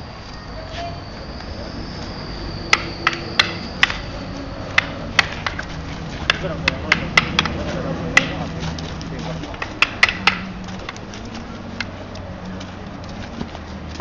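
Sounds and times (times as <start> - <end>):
practice sticks clacking: 2.6 - 13.2.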